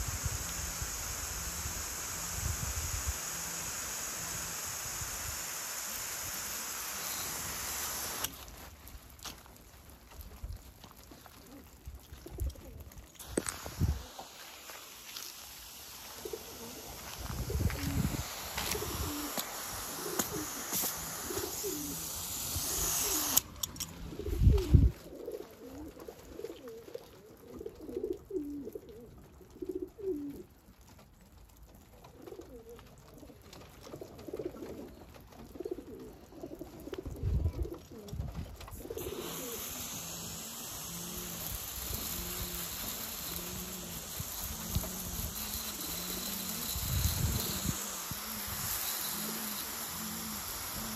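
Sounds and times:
water spray hissing: 0.0 - 9.2, 13.2 - 25.2, 38.8 - 50.9
pigeons cooing: 16.1 - 22.2, 22.8 - 30.5, 32.1 - 50.9.

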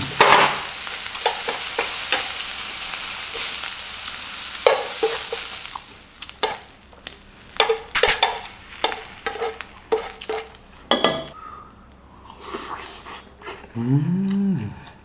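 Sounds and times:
meat sizzling in a frying pan: 0.0 - 10.8
tongs tapping and scraping pan: 0.2 - 2.4, 4.6 - 5.6, 6.2 - 11.4.

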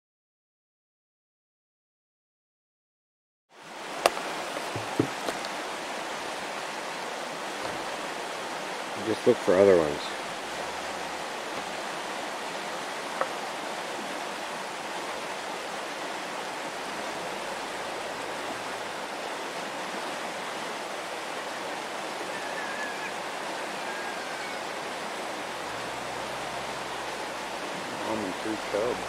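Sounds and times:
river water flowing: 3.5 - 29.0.

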